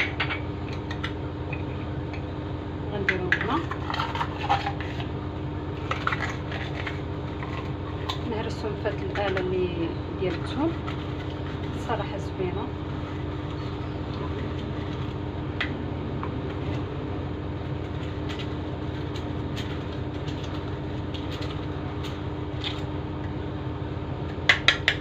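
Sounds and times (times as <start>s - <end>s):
low background hum: 0.0s - 25.0s.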